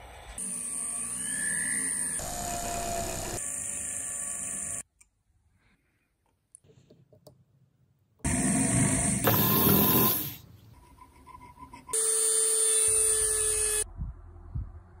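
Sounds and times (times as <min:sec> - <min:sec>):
rotary tool high whine: 0:00.0 - 0:04.9, 0:08.3 - 0:10.4, 0:12.0 - 0:13.8.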